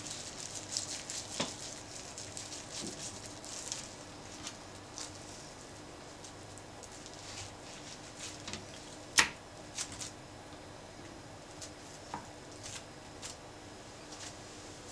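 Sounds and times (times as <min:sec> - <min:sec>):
bamboo mat rustling and clicking: 0:11.5 - 0:13.4.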